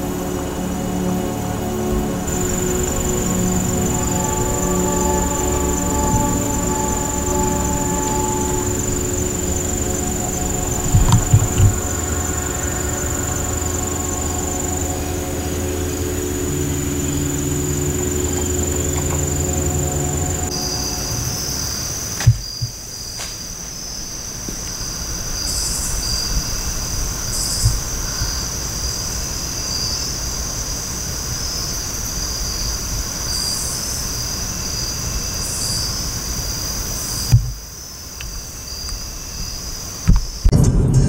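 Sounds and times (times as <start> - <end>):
insect chorus trilling: 0.0 - 40.5
wind rumble on microphone: 1.4 - 20.6.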